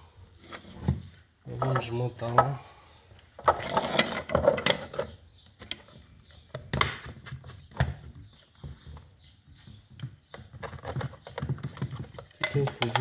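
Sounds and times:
rustling and scraping: 0.3s - 2.1s, 3.2s - 13.0s.

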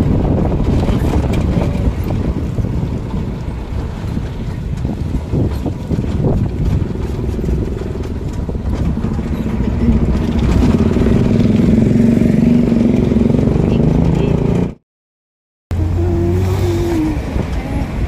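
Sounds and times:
passing vehicle engine hum: 0.0s - 14.8s, 15.7s - 18.0s
vehicle engine and road rumble: 0.0s - 14.8s, 15.7s - 18.0s
wind: 0.0s - 14.8s, 15.7s - 18.0s.

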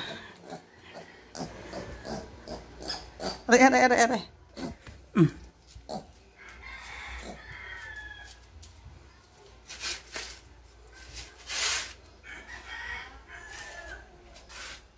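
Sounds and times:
faint rooster crowing: 6.3s - 8.7s, 12.2s - 14.8s.

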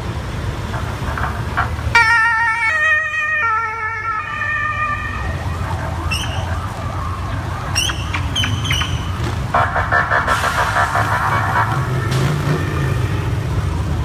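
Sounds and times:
low rumble of engines: 0.0s - 14.0s
warbling siren: 1.9s - 14.0s.

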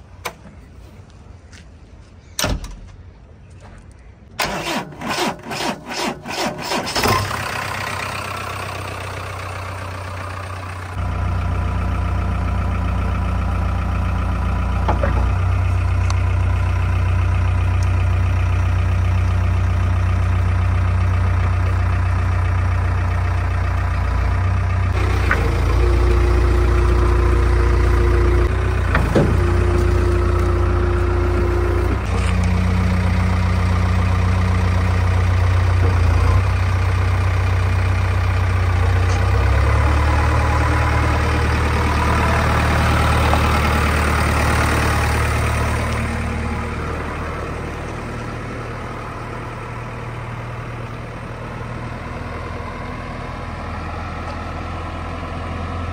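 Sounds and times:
diesel engine running: 4.4s - 55.9s.

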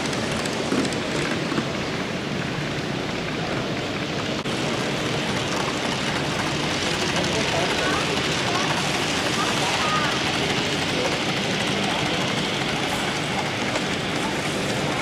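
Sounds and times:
steady rushing room noise: 3.0s - 15.0s.

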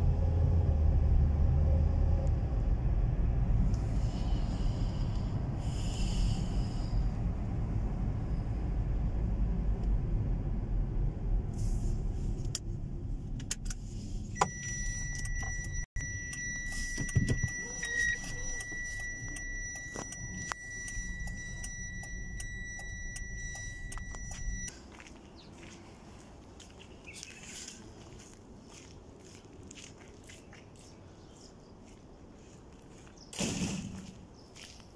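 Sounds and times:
low vehicle rumble: 0.0s - 27.1s
high-pitched electronic tone: 14.4s - 24.7s.

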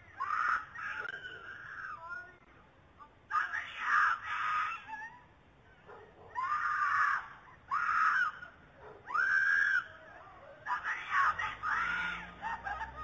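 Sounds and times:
woman screaming for help: 3.4s - 5.3s, 6.3s - 13.0s.

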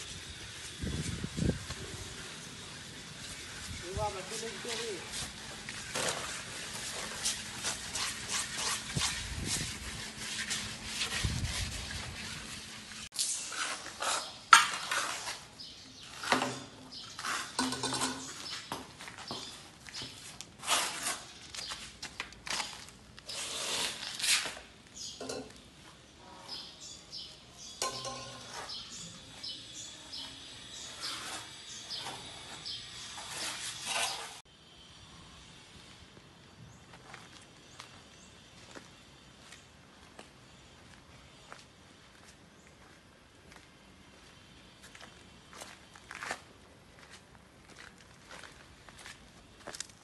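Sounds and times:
trowel scraping on wet plaster: 3.2s - 18.6s, 20.0s - 24.7s, 30.2s - 34.4s.

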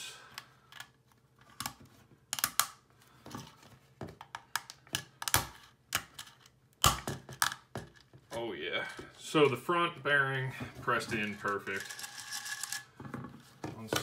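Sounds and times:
plastic parts clicking and knocking: 0.3s - 9.6s, 10.6s - 14.0s.

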